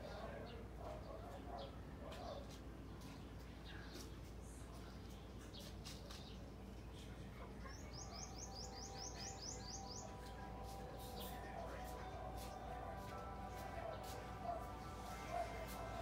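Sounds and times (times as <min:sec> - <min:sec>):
songbird chirping: 0:00.0 - 0:16.0.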